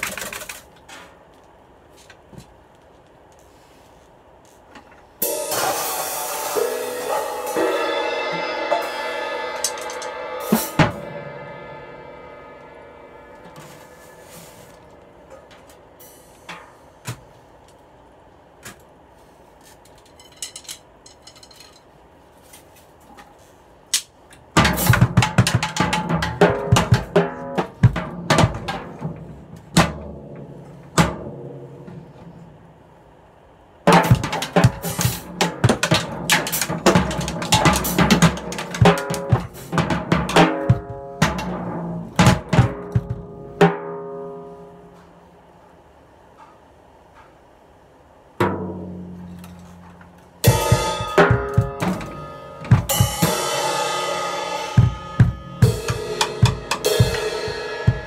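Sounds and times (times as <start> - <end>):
drum kit playing: 5.2 - 17.0, 24.5 - 31.9, 33.8 - 45.0, 50.4 - 58.0.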